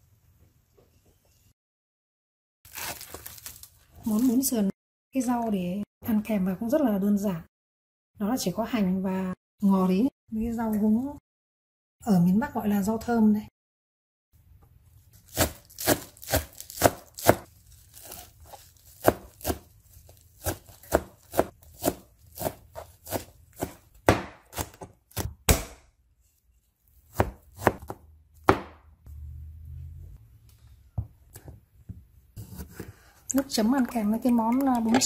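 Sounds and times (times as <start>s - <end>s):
knife chopping on cutting board: 15.3s - 19.7s, 20.4s - 25.9s, 27.1s - 28.9s, 31.3s - 33.1s.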